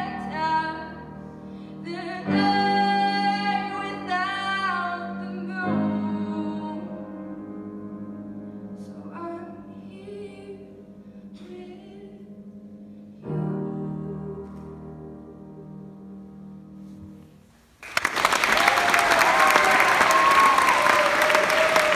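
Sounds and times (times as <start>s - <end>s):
woman singing: 0.0s - 1.2s, 1.8s - 7.1s, 8.8s - 12.4s
piano chords: 0.0s - 17.8s.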